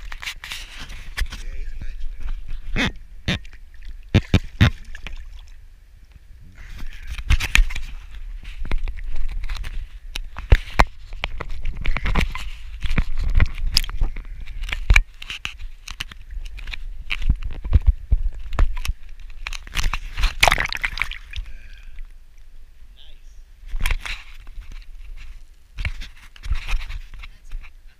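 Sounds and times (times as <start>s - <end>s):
camera handling noise: 6.8s - 20.5s.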